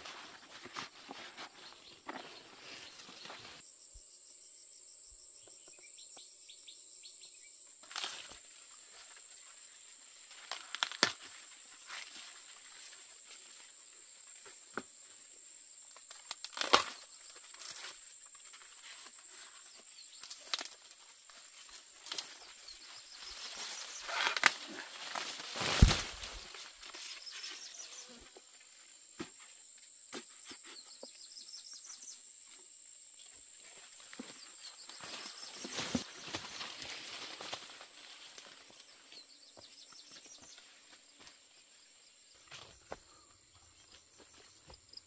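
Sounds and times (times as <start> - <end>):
corn leaves rustling: 0.0 - 3.6, 7.8 - 15.3, 15.9 - 29.4, 33.5 - 39.3
high insect drone: 1.8 - 45.0
corn ears snapping off stalks: 7.8 - 8.4, 10.3 - 12.9, 15.9 - 18.0, 20.2 - 22.6, 23.2 - 27.6.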